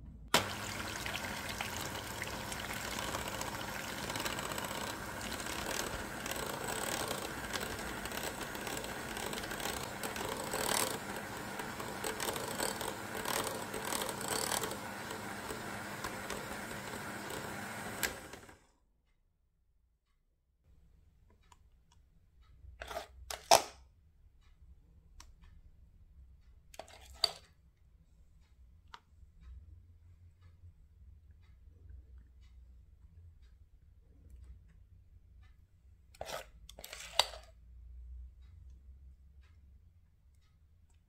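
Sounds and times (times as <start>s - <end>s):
electric hand mixer running: 0.4s - 18.6s.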